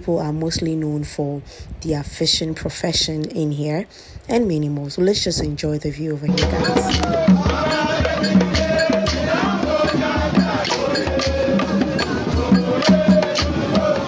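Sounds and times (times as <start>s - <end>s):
upbeat percussion music: 6.3s - 14.0s.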